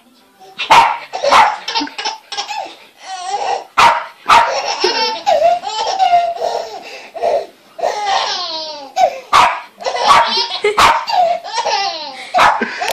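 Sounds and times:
dog barking: 0.7s - 1.6s, 3.8s - 4.7s, 9.3s - 11.2s, 12.4s - 12.7s
baby giggling: 1.1s - 3.6s, 4.3s - 12.9s.

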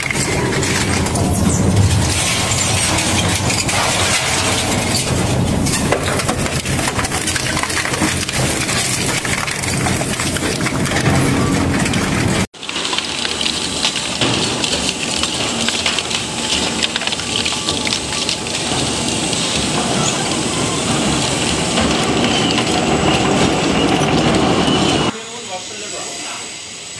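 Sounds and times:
shredder crunching material: 0.0s - 25.1s.

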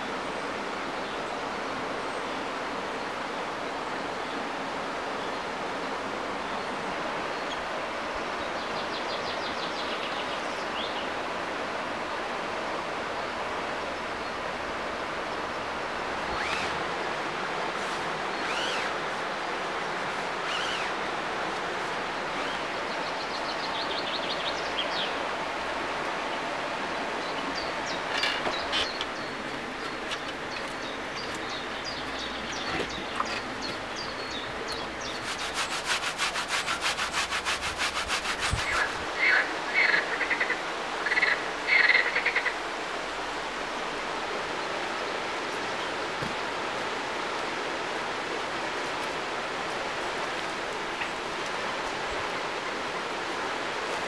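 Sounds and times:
river flowing: 0.0s - 54.0s
birds chirping: 15.2s - 25.3s, 26.1s - 42.6s.

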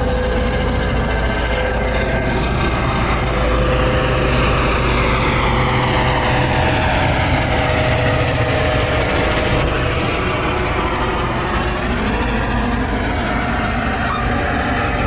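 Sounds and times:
helicopter rotor rumble: 0.0s - 15.0s
helicopter whine falling in pitch: 0.0s - 15.0s.

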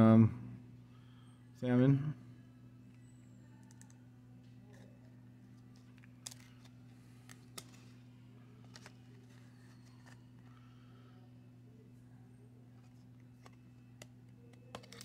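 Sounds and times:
cards being shuffled: 5.8s - 8.0s, 8.6s - 10.5s, 12.8s - 15.0s.

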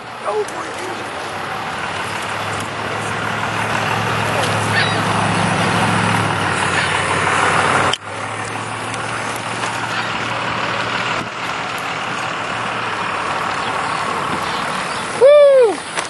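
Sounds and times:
low engine hum: 0.0s - 16.0s
road traffic: 0.0s - 16.0s.

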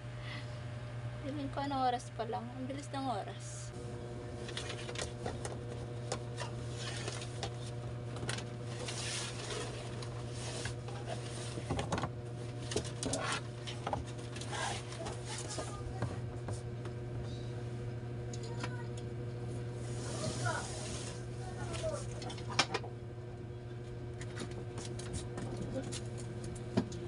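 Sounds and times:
steady low hum: 0.0s - 27.0s
objects rustling and knocking: 4.4s - 16.7s.

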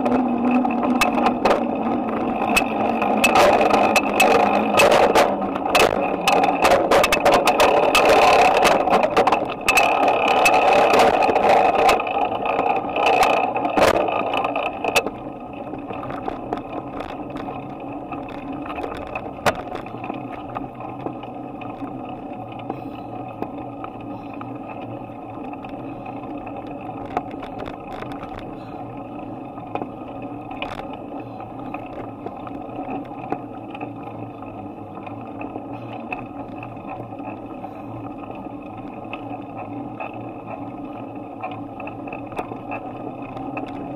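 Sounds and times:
bike knocks and rattles: 0.0s - 28.8s
bicycle tyre rumble: 0.0s - 43.9s
bike ticking: 0.0s - 43.9s.

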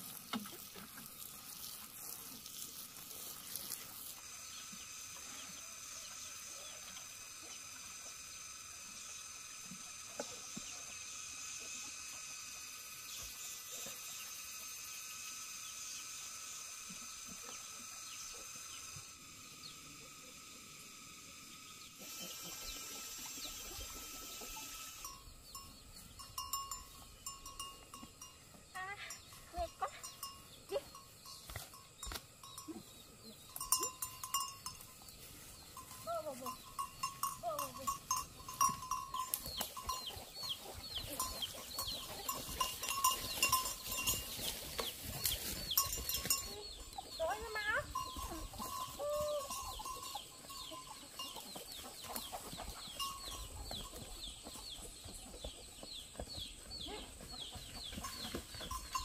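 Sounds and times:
insects droning: 0.0s - 54.4s
outdoor ambience: 0.0s - 59.0s
cattle bell clanking: 24.4s - 55.0s, 57.9s - 59.0s
footsteps rustling through grass: 40.8s - 46.5s.

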